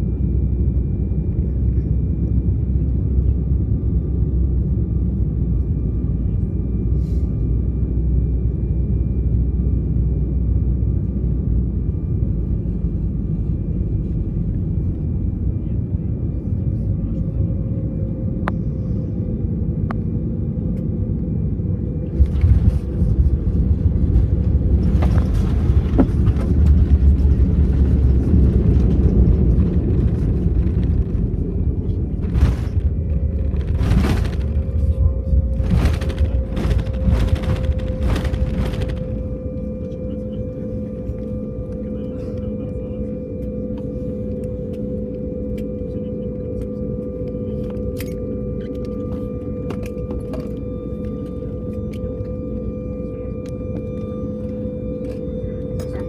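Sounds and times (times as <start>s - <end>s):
airplane cabin engine rumble: 0.0s - 56.0s
rushes of air noise: 24.3s - 39.4s.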